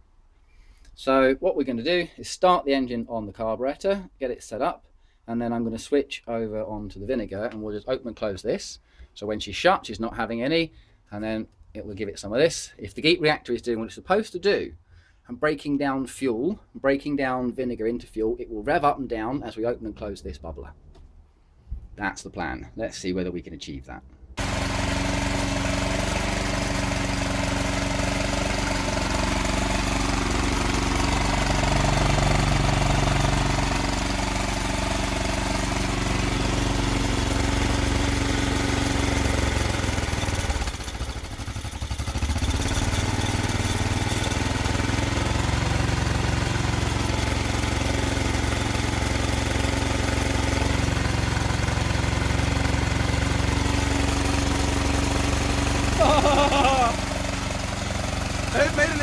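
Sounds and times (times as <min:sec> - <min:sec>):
small engine running: 0:24.4 - 0:59.0.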